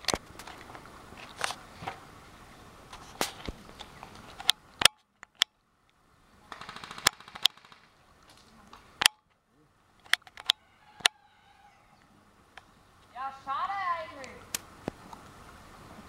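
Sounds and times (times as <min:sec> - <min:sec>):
airsoft guns firing: 0:06.5 - 0:07.9.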